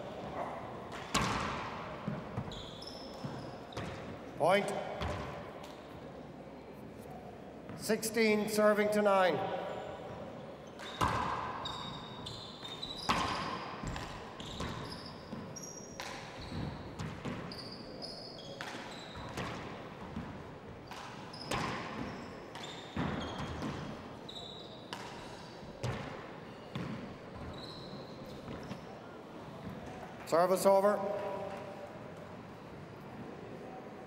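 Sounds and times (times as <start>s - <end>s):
shoes squeaking on wooden floor: 2.0s - 4.1s, 26.5s - 28.9s.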